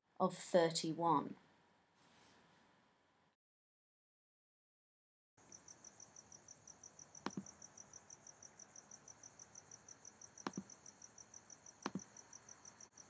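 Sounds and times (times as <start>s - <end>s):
computer mouse clicks: 7.2s - 7.5s, 10.4s - 10.8s, 11.8s - 12.1s.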